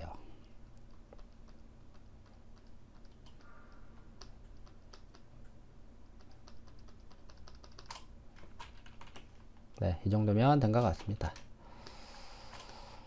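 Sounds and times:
keyboard keys clicking: 6.2s - 9.3s.

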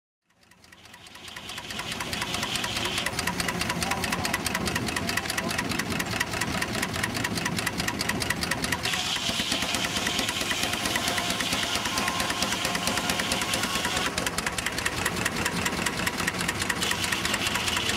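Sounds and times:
steam engine beating rhythmically: 0.3s - 17.9s
steam hiss: 1.2s - 3.4s, 8.8s - 14.3s.

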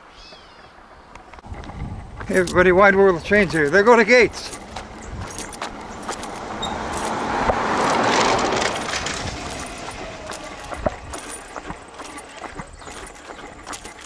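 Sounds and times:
vehicle driving past: 4.4s - 14.0s.

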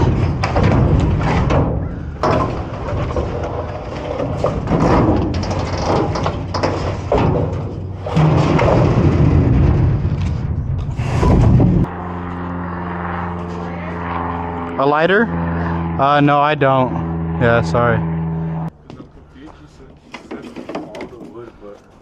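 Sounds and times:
scrap wood clattering: 0.0s - 11.9s
steady low hum: 0.0s - 20.4s.

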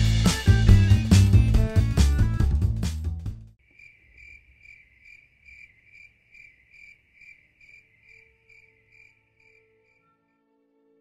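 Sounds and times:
music track: 0.0s - 3.4s
cricket chirping: 3.6s - 10.3s.

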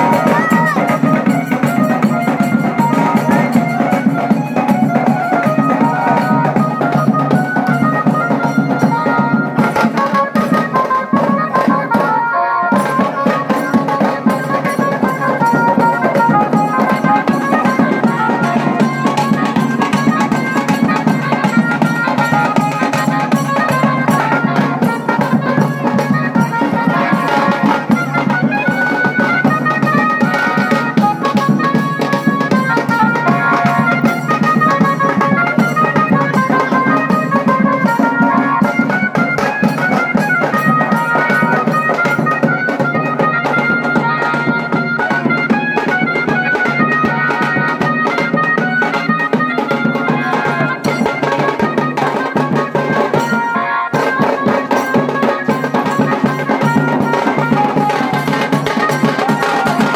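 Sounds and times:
barrel drums beating fast rhythm: 0.0s - 59.9s.

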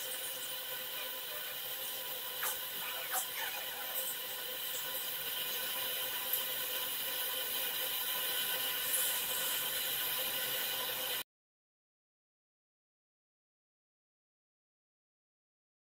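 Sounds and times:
laser engraver hissing buzz: 0.0s - 11.2s.

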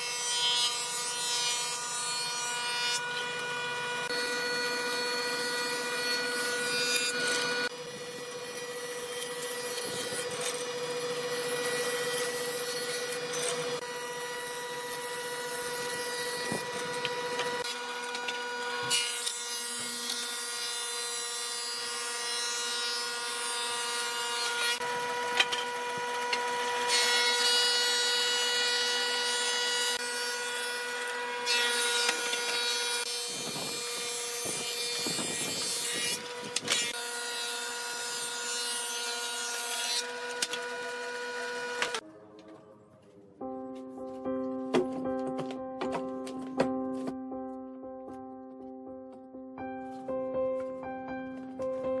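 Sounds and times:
planer machine whine: 2.2s - 20.4s, 24.4s - 30.2s.

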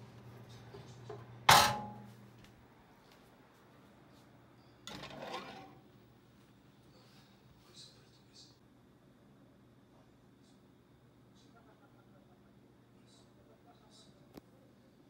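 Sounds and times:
metal loaf tin clanking: 1.5s - 2.0s, 4.9s - 5.8s.

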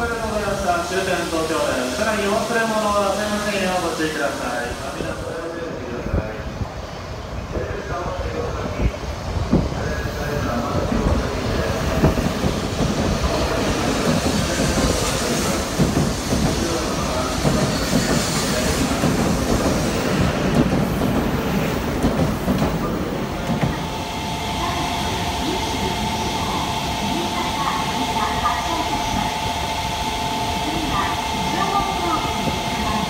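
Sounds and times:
train wheels rumbling: 0.0s - 33.0s.

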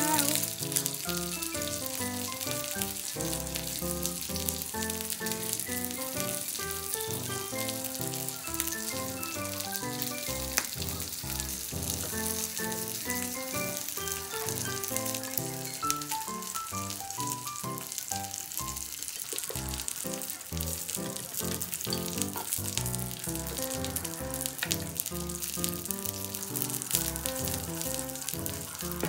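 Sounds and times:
background music: 0.0s - 18.6s, 20.8s - 29.0s
food sizzling on hot plate: 0.0s - 29.0s.

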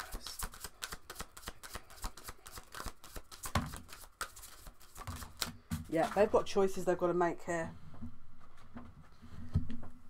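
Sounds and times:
cards being shuffled: 0.0s - 6.2s.

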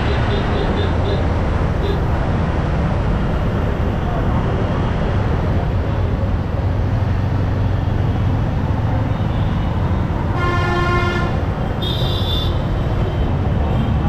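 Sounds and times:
motorcycle road and wind rumble: 0.0s - 14.0s
vehicle horn: 10.3s - 13.9s.

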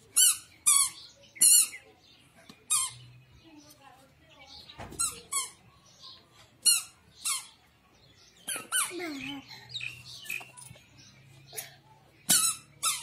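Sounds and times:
squeaky shoes squeaking: 0.2s - 1.8s, 4.9s - 5.6s, 8.4s - 9.3s, 12.3s - 13.0s.

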